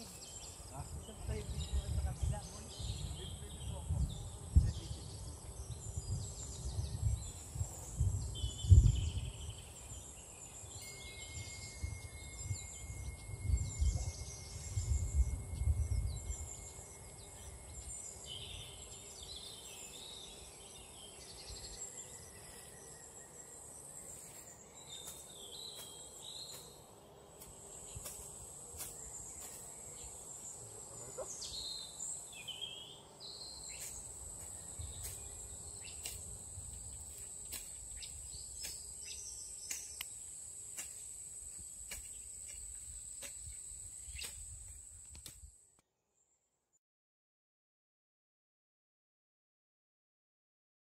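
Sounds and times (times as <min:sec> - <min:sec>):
birds chirping: 0:00.0 - 0:45.1
insects droning: 0:00.0 - 0:45.6
wind rumble on microphone: 0:00.7 - 0:09.9, 0:11.3 - 0:18.7, 0:34.6 - 0:35.5.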